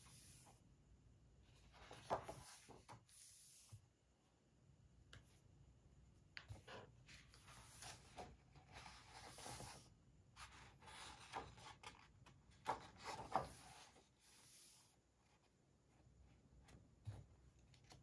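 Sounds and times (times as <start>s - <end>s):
paper pages rustling: 10.4s - 14.0s.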